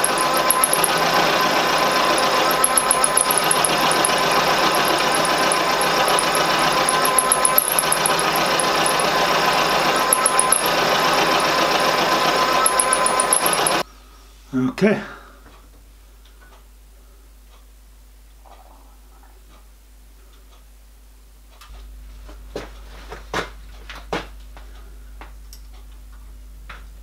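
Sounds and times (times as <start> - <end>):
milling machine cutting metal: 0.0 - 13.8.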